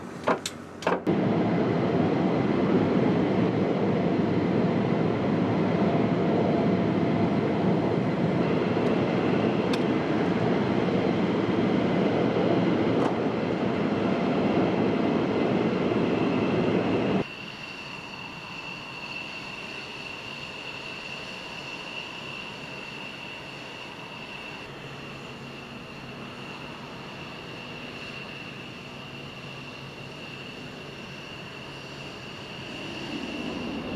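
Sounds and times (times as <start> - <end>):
jet aircraft engine roar: 0.0 - 33.9
faint high whine: 13.2 - 33.9.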